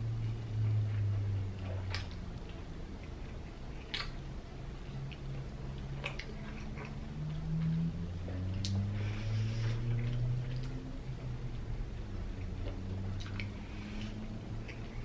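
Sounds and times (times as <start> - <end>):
low steady hum: 0.0 - 15.0
person chewing: 0.2 - 15.0
mouth clicks: 3.8 - 4.2.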